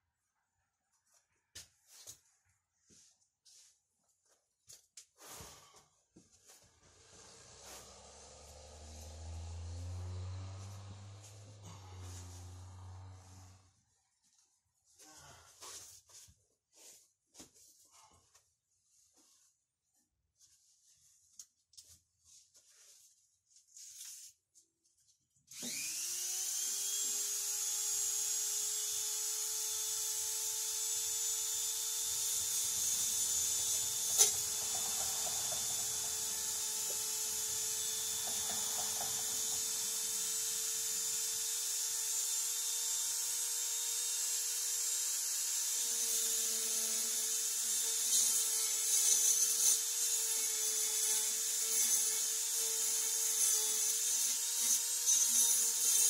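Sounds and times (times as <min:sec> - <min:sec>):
high-speed power tool running: 0:06.8 - 0:13.6, 0:25.5 - 0:56.0.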